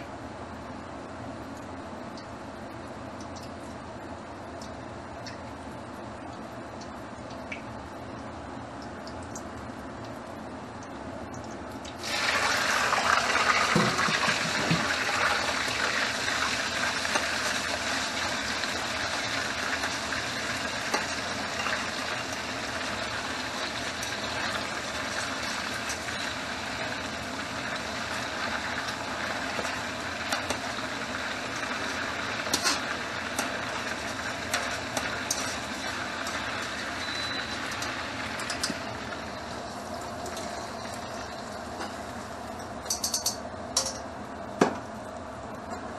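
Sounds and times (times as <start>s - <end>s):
meat sizzling in hot oil: 11.9s - 42.4s.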